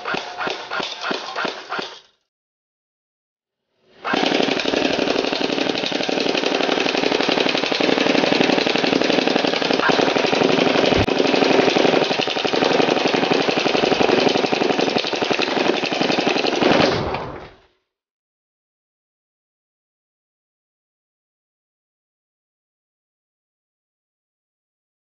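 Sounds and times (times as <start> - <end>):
airsoft gun full-auto burst: 4.0 - 16.8.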